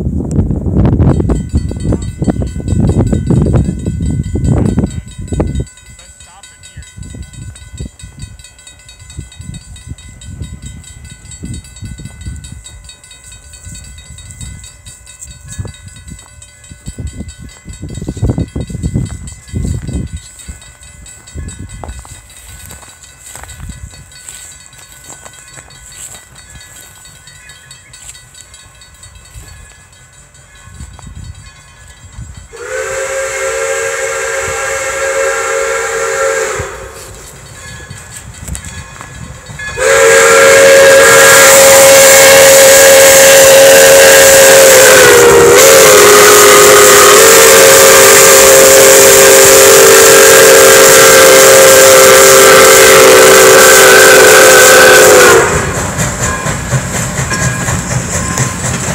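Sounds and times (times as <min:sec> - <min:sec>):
approaching train: 0:00.0 - 0:58.9
steam whistle blasts: 0:32.5 - 0:37.2, 0:39.7 - 0:56.0.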